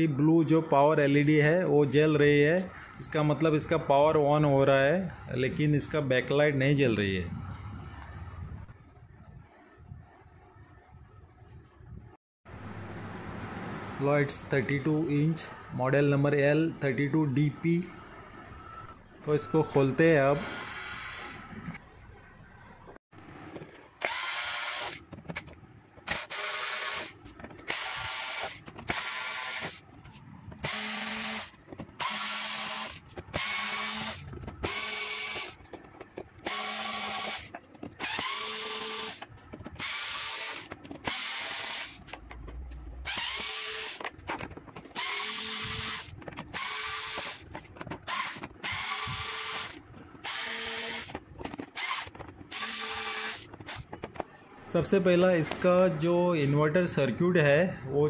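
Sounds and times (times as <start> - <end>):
cordless screwdriver whirring: 24.0 - 25.0, 26.0 - 29.8, 30.6 - 35.8, 36.4 - 42.2, 43.0 - 53.9.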